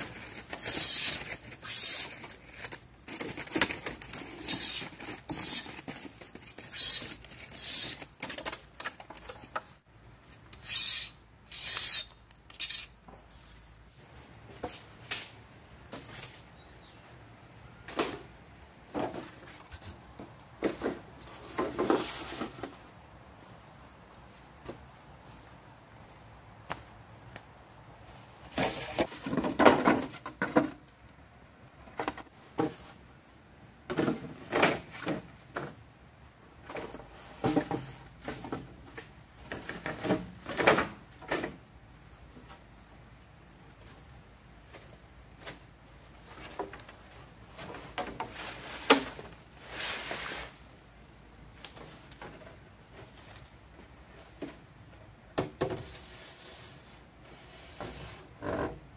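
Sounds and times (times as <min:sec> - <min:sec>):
work knocks clatters and scrapes: 0:00.0 - 0:09.8, 0:18.9 - 0:22.8, 0:28.5 - 0:30.8, 0:31.8 - 0:33.0, 0:33.9 - 0:35.8, 0:36.6 - 0:41.7, 0:46.2 - 0:50.6, 0:55.4 - 0:58.8
insects chirring: 0:00.0 - 0:58.9.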